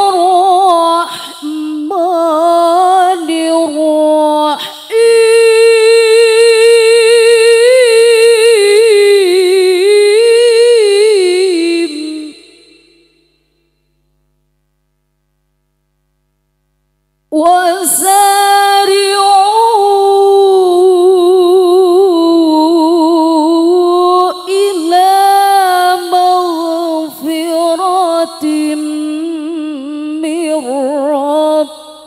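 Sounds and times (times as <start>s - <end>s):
woman reciting melodically: 0.0s - 13.1s, 17.3s - 32.0s.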